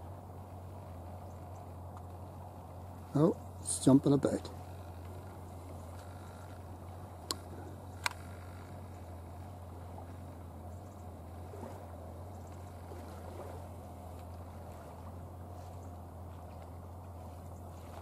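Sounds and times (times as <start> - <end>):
low hum and faint hiss: 0.0 - 18.0
sharp clicks: 7.2 - 8.3.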